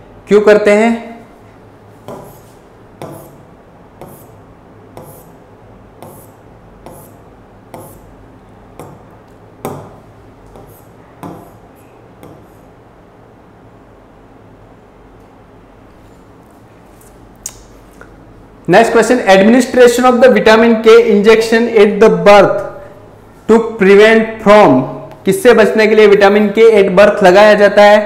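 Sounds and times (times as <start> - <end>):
pen tapping on glass screen: 2.1 - 2.4, 3.0 - 3.4, 5.0 - 5.2, 6.0 - 7.1, 7.7 - 8.0, 8.8 - 11.6.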